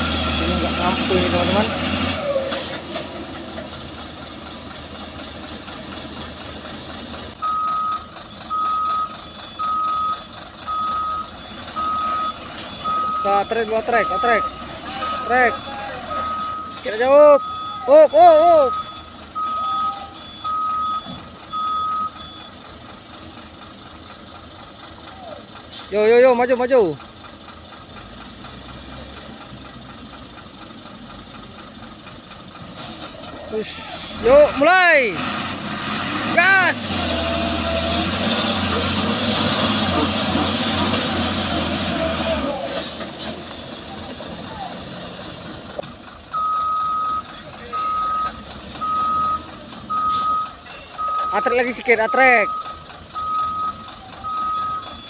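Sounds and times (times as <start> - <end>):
heavy diesel engine running: 0.0 - 55.0
reversing alarm beeping: 7.4 - 22.6, 46.3 - 55.0.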